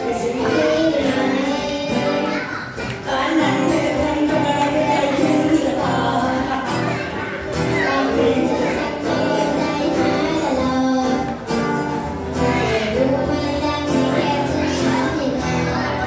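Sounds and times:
man singing: 0.0s - 2.2s, 3.1s - 7.1s
acoustic guitar: 0.0s - 16.0s
girl singing: 0.0s - 16.0s.

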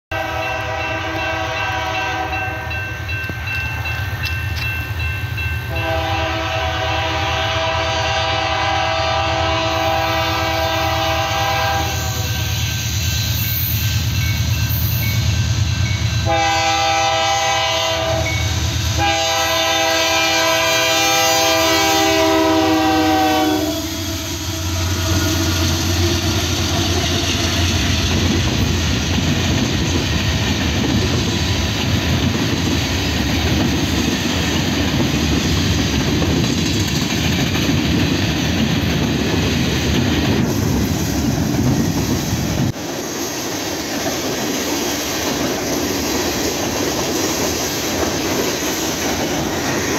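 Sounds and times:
train air horn blasts: 0.1s - 2.9s, 5.7s - 12.6s, 16.2s - 28.0s
freight train rumbling on rails: 0.1s - 49.9s.

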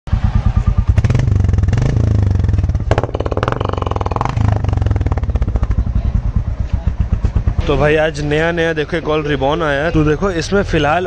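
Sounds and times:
motorcycle engine revving: 0.1s - 8.6s.

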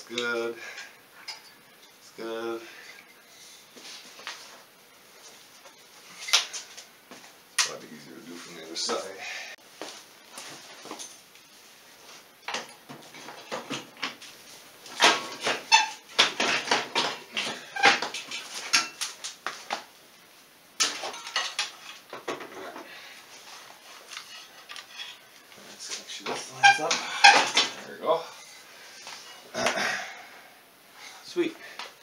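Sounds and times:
tools clanking against metal: 20.8s - 22.5s.

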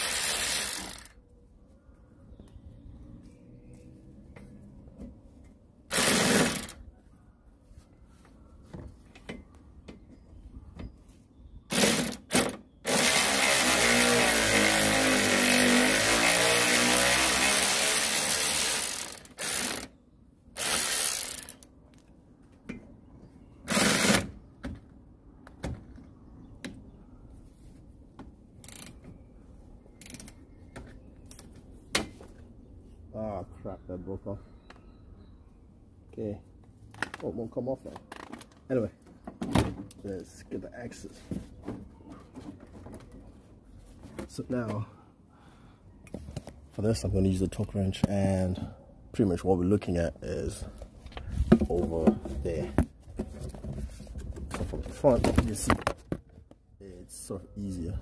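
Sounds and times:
electric ratchet whirring: 0.0s - 1.1s, 5.9s - 6.8s, 11.7s - 20.0s, 20.6s - 21.7s, 23.7s - 24.3s.

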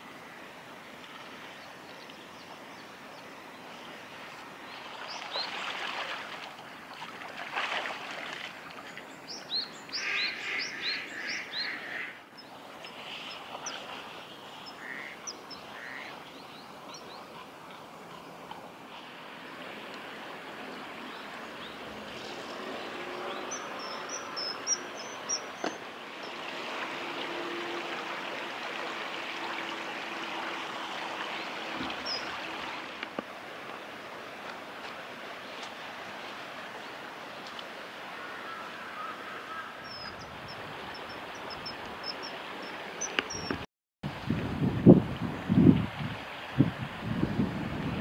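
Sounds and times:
river rushing: 0.0s - 43.5s
steady outdoor hiss: 0.0s - 48.0s
kingfisher high thin calls: 14.6s - 16.1s.

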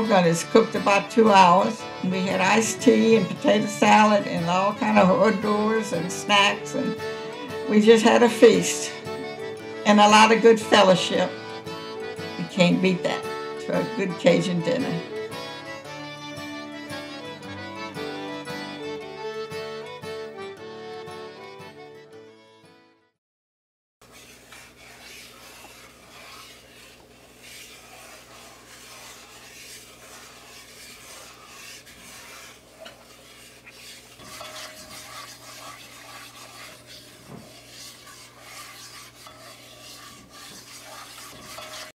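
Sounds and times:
wooden spoon scraping pot: 0.0s - 7.0s, 24.0s - 42.0s.

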